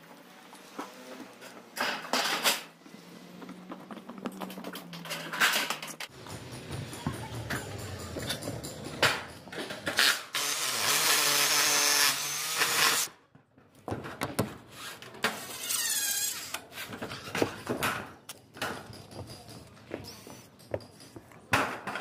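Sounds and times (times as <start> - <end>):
drill driving screw into metal: 10.0 - 13.1.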